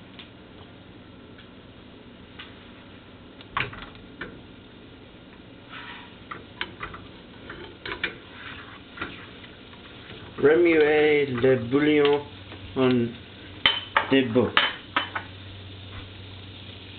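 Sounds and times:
low steady hum: 0:00.0 - 0:16.9
short scraping sounds: 0:05.7 - 0:06.2.

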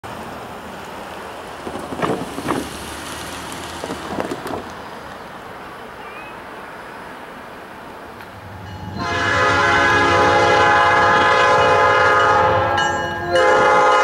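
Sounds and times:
wind blowing across microphone: 0:01.6 - 0:02.8, 0:03.5 - 0:05.0.

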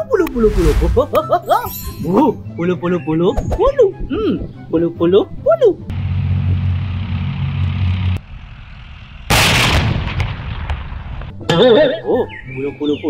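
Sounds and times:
track and drivetrain noise: 0:05.9 - 0:09.3
tank diesel engine running: 0:05.9 - 0:09.4
loud cannon blast: 0:09.3 - 0:11.1.

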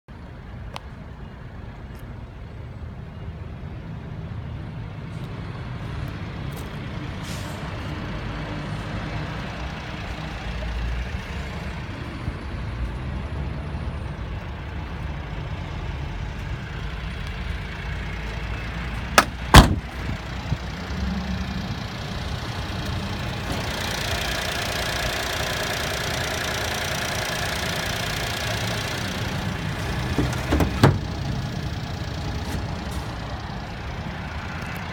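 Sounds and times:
sharp knocks: 0:19.2 - 0:19.8
small engine idling: 0:20.1 - 0:34.9.

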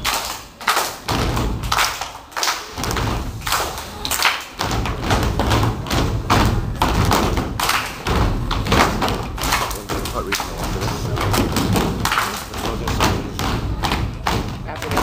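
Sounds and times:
feet stomping on wooden stage: 0:01.0 - 0:01.9, 0:02.8 - 0:03.8, 0:04.6 - 0:15.0.

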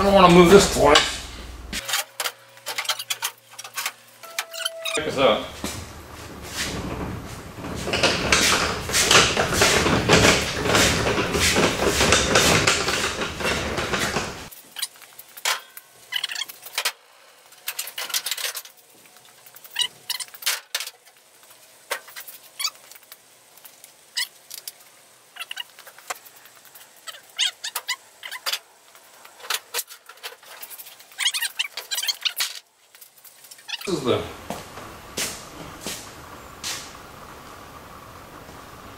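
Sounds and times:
metal parts clattering and scraping: 0:00.5 - 0:05.0, 0:06.7 - 0:21.2, 0:25.4 - 0:33.9.

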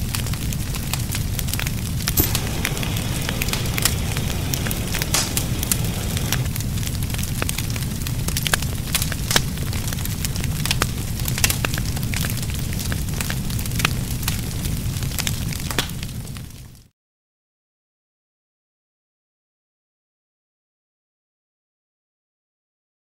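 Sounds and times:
fire crackling and popping: 0:00.0 - 0:16.9
fire rumbling: 0:00.0 - 0:16.9.

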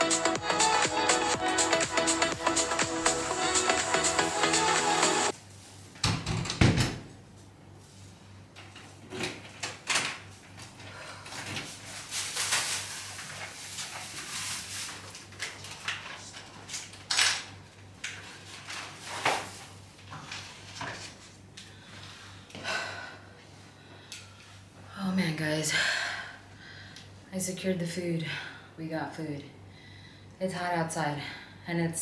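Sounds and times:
plastic bag rustling: 0:11.6 - 0:16.4.

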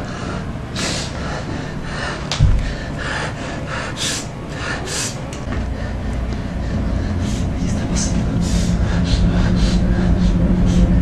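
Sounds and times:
dull thump: 0:02.4 - 0:02.8.

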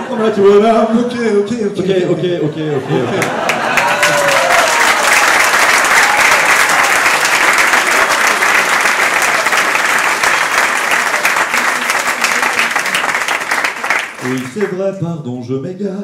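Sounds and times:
audience applauding: 0:03.0 - 0:14.8.

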